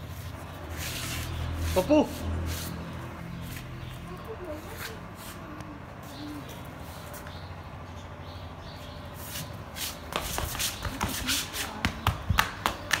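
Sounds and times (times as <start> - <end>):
footsteps scuffing on marble floor: 9.2 - 12.0.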